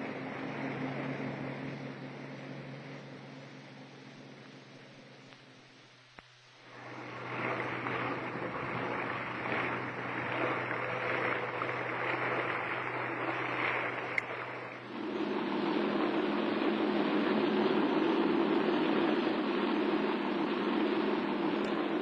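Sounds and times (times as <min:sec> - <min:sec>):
low steady hum: 0:00.0 - 0:22.0
water rushing past boat hull: 0:06.7 - 0:22.0.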